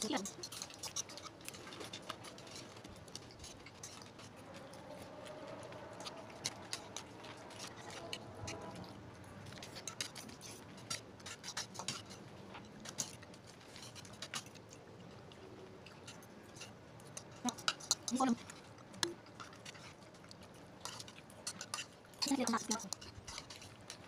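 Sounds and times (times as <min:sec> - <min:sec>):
cutlery clinking against a plate: 0:00.0 - 0:02.7, 0:09.5 - 0:13.2, 0:15.9 - 0:24.0.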